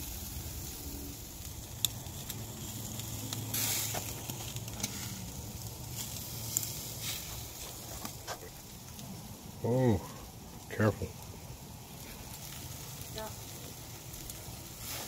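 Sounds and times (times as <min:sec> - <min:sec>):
meat sizzling on a grill: 0:00.0 - 0:15.0.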